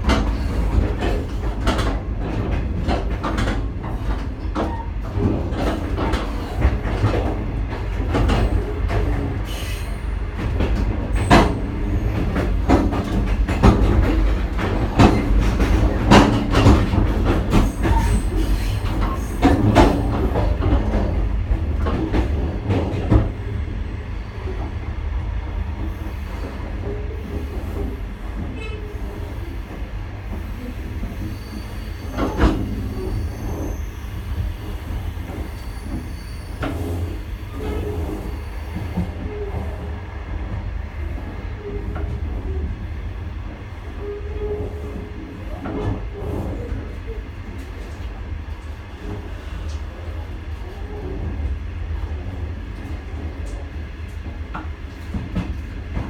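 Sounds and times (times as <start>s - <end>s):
train rumble: 0.0s - 56.0s
wheel clacks over rail joints: 10.4s - 23.4s.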